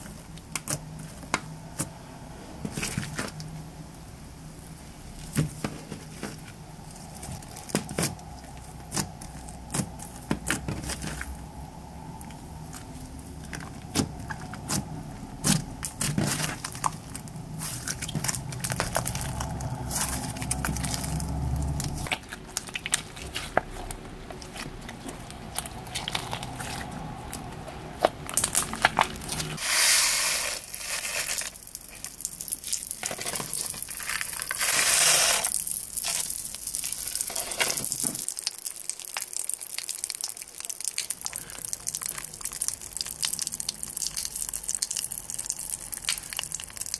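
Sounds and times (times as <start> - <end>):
slime squishing and popping: 12.2 - 29.6, 38.2 - 46.9.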